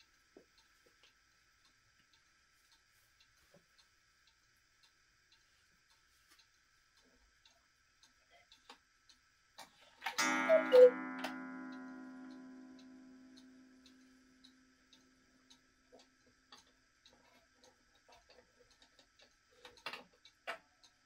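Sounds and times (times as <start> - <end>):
clock ticking softly: 0.0 - 21.0
clock movement clicks: 8.0 - 21.0
two-note cuckoo call: 10.2 - 13.4
clock gong ringing: 10.2 - 14.8.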